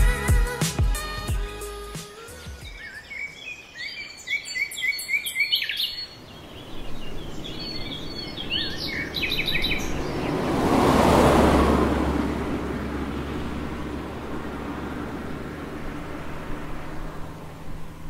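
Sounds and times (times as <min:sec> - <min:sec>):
small birds chirping: 0:01.6 - 0:10.8
rushing noise: 0:07.0 - 0:18.0
low steady rumble: 0:09.7 - 0:18.0.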